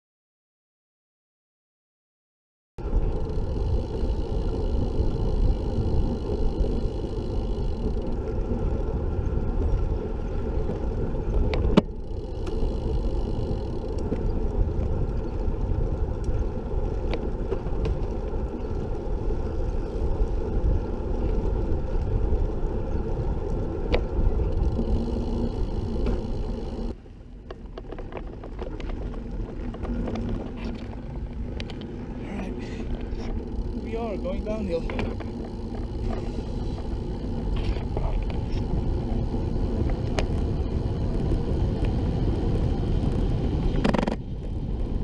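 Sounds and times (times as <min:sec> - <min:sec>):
tyre noise on pavement: 0:02.8 - 0:45.0
wind buffeting microphone: 0:02.8 - 0:45.0
faint ticks: 0:10.6 - 0:22.5, 0:23.4 - 0:29.1, 0:32.6 - 0:44.2.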